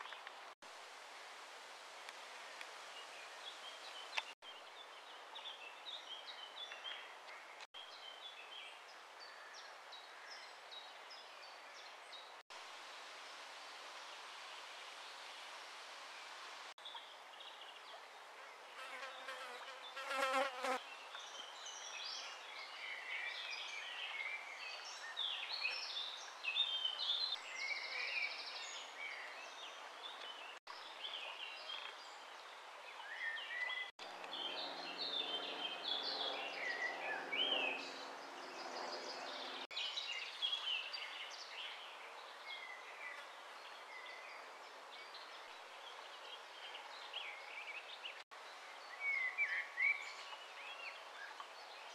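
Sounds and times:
faint hiss: 0.2 - 20.0.

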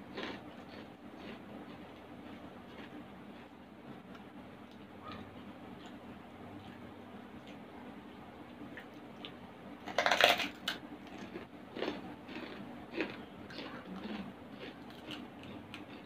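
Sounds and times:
pork crackling crunching: 0.1 - 6.0, 9.9 - 16.0.

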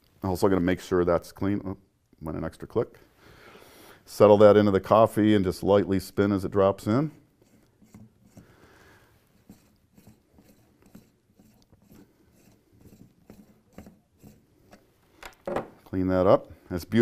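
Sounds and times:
coffee leveler scraping and clicking: 7.4 - 8.5, 9.3 - 14.9.

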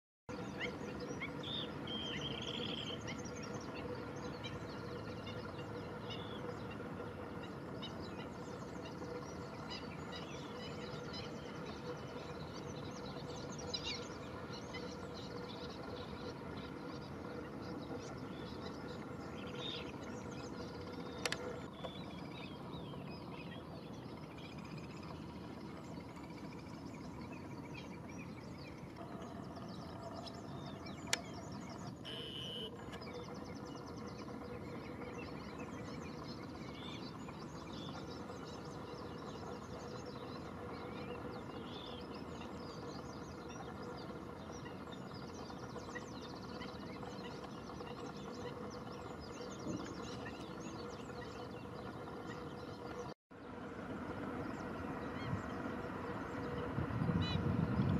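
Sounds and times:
distant bird chirps: 0.3 - 57.9
faint hum: 0.3 - 57.9.

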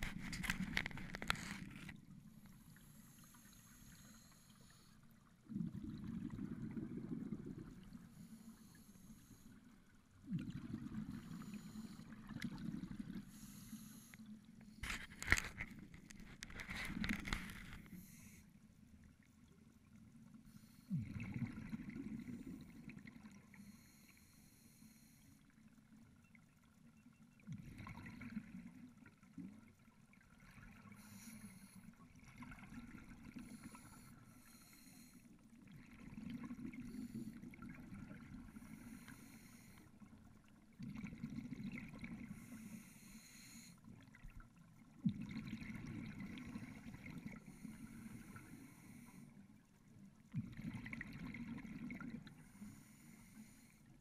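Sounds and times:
scuba regulator exhaust bubbles: 5.4 - 8.2, 20.9 - 23.8, 45.0 - 49.2.

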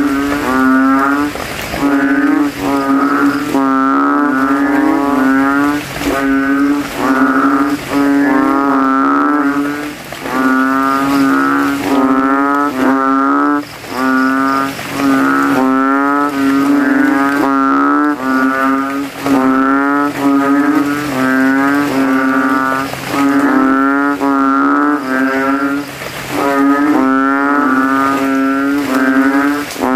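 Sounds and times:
frogs calling in chorus: 0.0 - 29.9.

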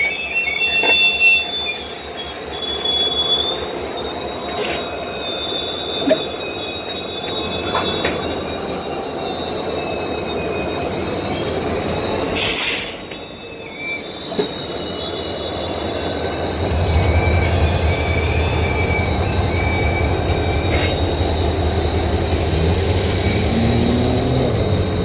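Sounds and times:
train wheels squealing on rails: 0.0 - 25.0
diesel engines rumbling: 16.9 - 25.0.

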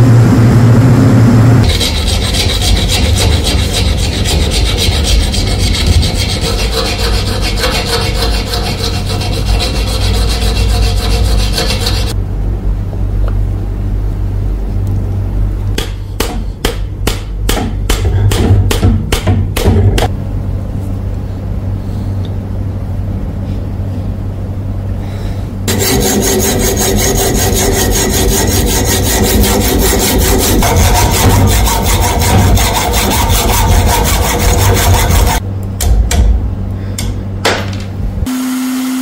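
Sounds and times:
tool scraping wood: 1.6 - 12.2, 25.7 - 35.4.

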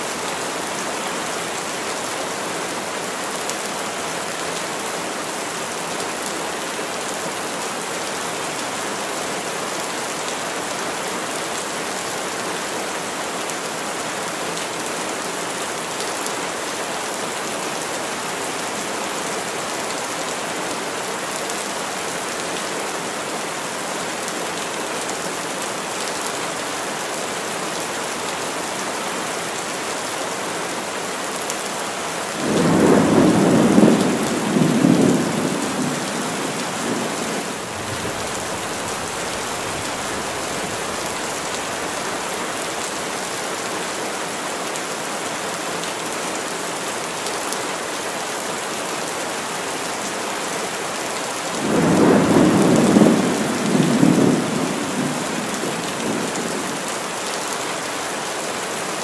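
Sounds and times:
heavy rain on trees: 0.0 - 59.0
thunder rumbling: 51.6 - 56.5.

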